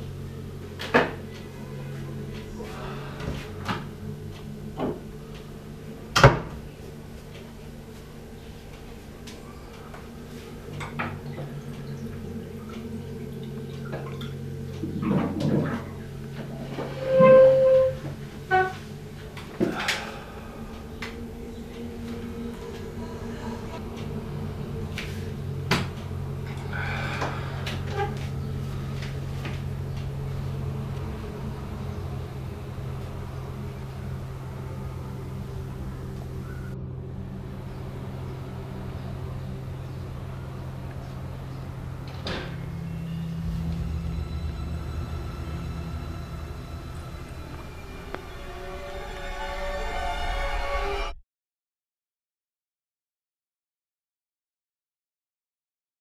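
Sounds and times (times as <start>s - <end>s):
steady low hum: 0.0s - 50.4s
chair scraping and creaking: 14.8s - 19.0s.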